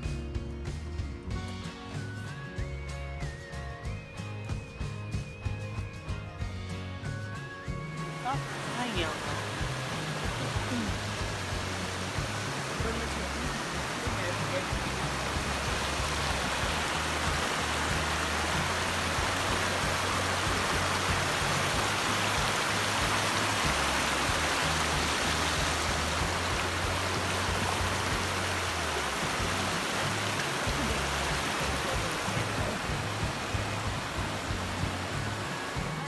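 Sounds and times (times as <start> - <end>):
background music with bass: 0.0 - 36.0
stream rushing over rocks: 8.0 - 36.0.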